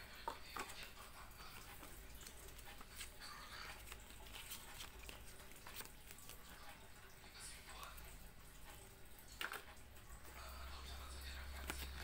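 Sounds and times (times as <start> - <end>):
paper rustling: 0.4 - 6.8, 11.5 - 12.0.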